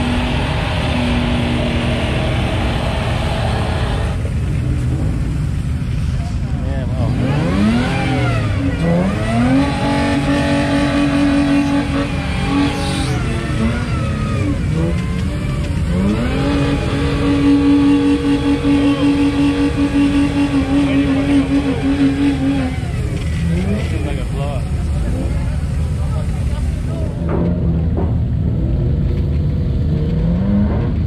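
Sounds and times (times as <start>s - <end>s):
engine revving hard: 0.0s - 4.3s, 7.0s - 25.5s, 29.9s - 31.0s.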